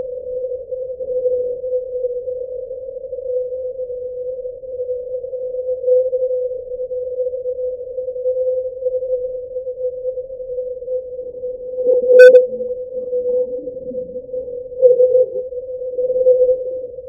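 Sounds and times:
steady electronic hum: 0:11.9 - 0:16.2.

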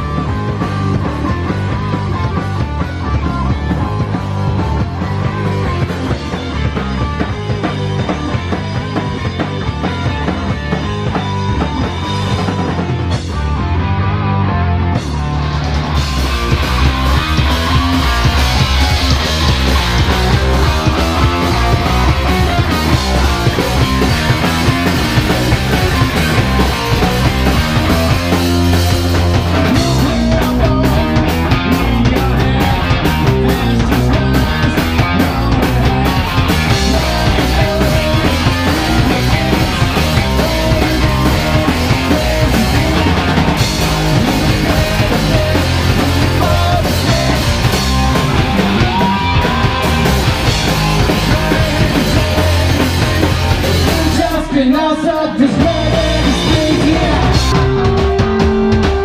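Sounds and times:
bass guitar: 0:00.0 - 0:59.0
distorted electric guitar: 0:00.0 - 0:59.0
drum kit: 0:00.0 - 0:59.0.

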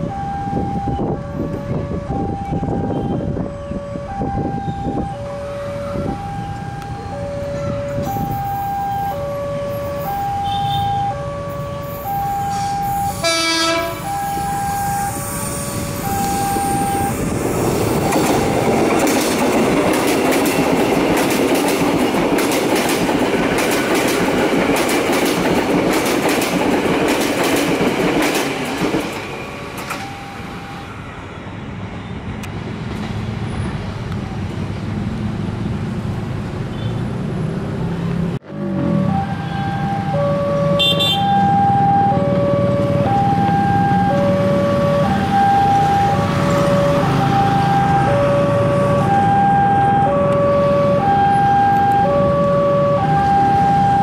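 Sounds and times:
level crossing two-tone alarm: 0:00.0 - 0:17.2, 0:29.9 - 0:30.9, 0:38.5 - 0:54.0
train horn blast: 0:12.5 - 0:14.1, 0:40.7 - 0:41.4
train wheels clattering over joints: 0:17.8 - 0:30.0.

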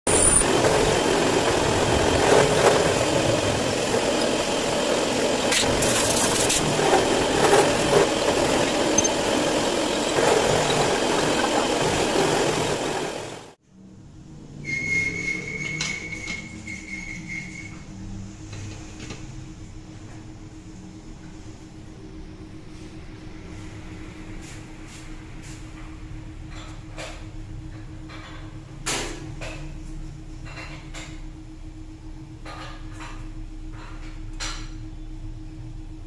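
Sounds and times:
milling machine cutting metal: 0:00.1 - 0:13.6.

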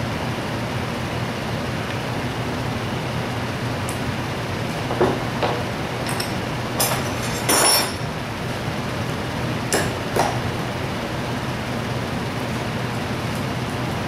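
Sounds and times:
metal parts clinking on workbench: 0:06.1 - 0:08.0.

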